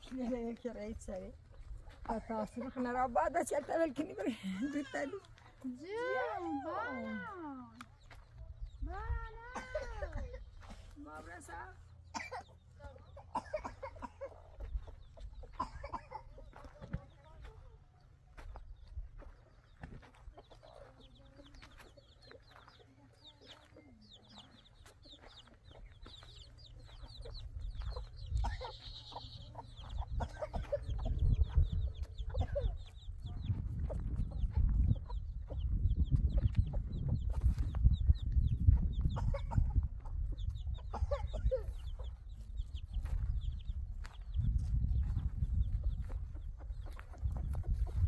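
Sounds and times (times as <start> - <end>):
chickens clucking: 0.0 - 48.0.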